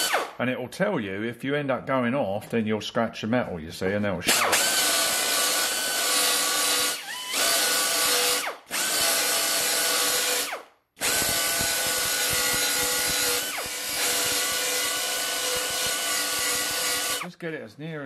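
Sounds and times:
belt sander grinding metal: 0:04.5 - 0:17.3.

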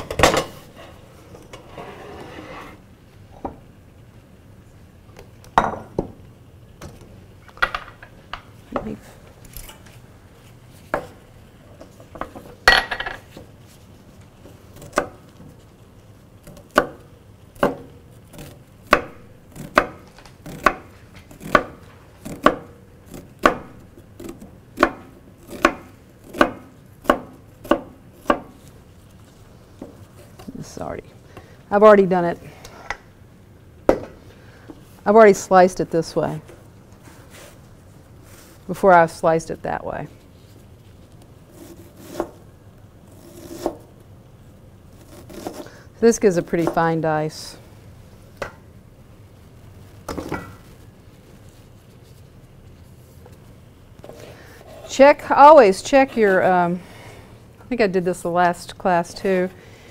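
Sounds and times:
knife chopping on wooden board: 0:17.6 - 0:28.6.

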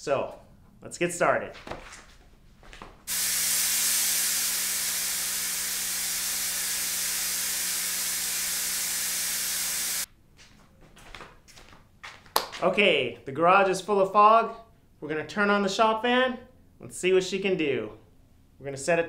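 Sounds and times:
fog machine hissing: 0:03.1 - 0:10.1
pump buzzing: 0:03.1 - 0:10.1.

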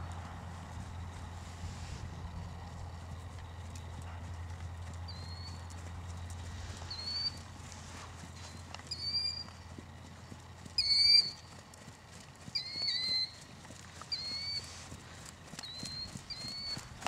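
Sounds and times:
muffled hoofbeats on sand: 0:00.0 - 0:17.0
high thin squeaking call: 0:06.9 - 0:07.4, 0:08.5 - 0:09.5, 0:10.8 - 0:11.4, 0:12.6 - 0:13.4, 0:14.1 - 0:14.7, 0:15.6 - 0:16.9.

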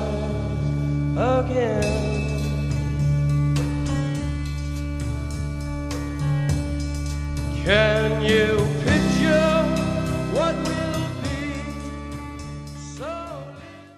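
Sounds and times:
person singing: 0:00.0 - 0:02.9, 0:07.6 - 0:13.9
country song with guitar: 0:00.0 - 0:13.9.

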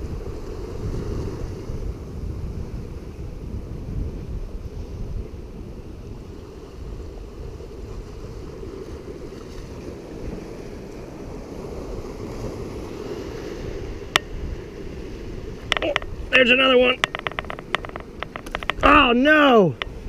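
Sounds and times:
ocean surf washing: 0:00.0 - 0:20.0
wind buffeting microphone: 0:00.0 - 0:20.0
sharp click: 0:17.0 - 0:18.9.

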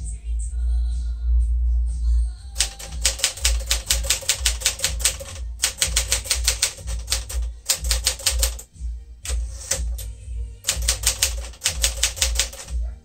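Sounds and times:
manual typewriter typing: 0:02.6 - 0:08.7, 0:09.3 - 0:12.8.

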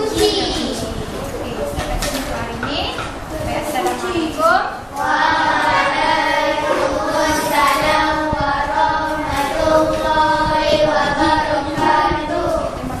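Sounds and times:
children singing in unison: 0:05.0 - 0:13.0.

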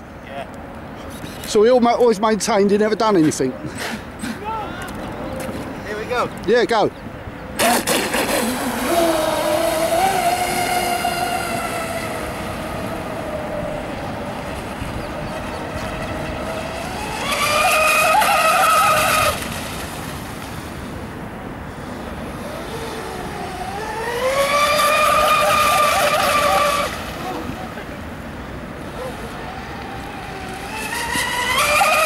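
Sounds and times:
model boat motor whining: 0:07.6 - 0:19.5, 0:21.8 - 0:28.0, 0:28.6 - 0:32.0.

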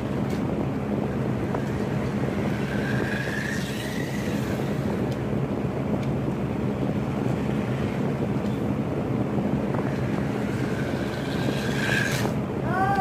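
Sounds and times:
room fan: 0:00.0 - 0:13.0
toy car electric motor whining: 0:01.5 - 0:05.2, 0:09.8 - 0:12.4.

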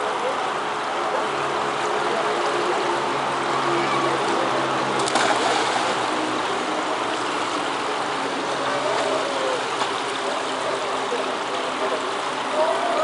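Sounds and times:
rushing water in a pool: 0:00.0 - 0:13.0
child splashing into water: 0:04.9 - 0:06.0.

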